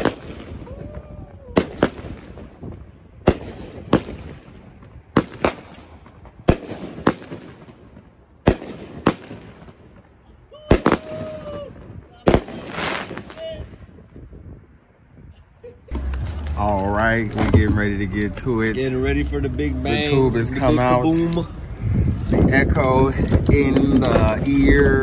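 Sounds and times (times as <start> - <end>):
firework bangs: 0.0 - 10.1, 10.7 - 14.3
firework crackling: 0.0 - 10.1, 10.7 - 13.8, 15.9 - 25.0.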